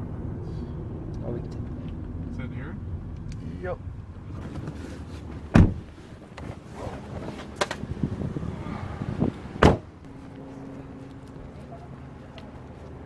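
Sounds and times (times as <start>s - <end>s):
car door thumping: 5.4s - 5.9s, 9.6s - 9.9s.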